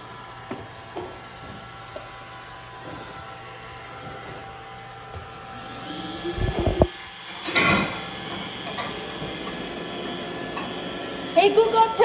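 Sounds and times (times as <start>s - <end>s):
robot vacuum motor hum: 5.1s - 12.0s.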